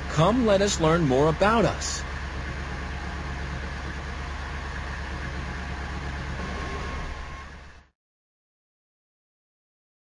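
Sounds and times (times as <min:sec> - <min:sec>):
cartoon jeep engine rumble: 0:00.0 - 0:08.0.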